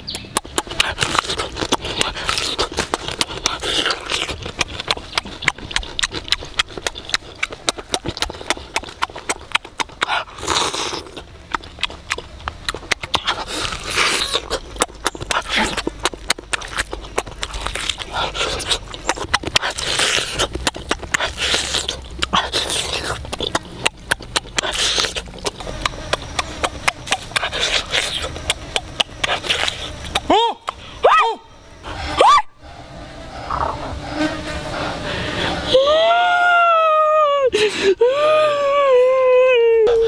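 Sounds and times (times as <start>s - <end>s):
wet lip smacking and chewing: 0.0s - 30.8s
slurping sauce: 0.6s - 30.8s.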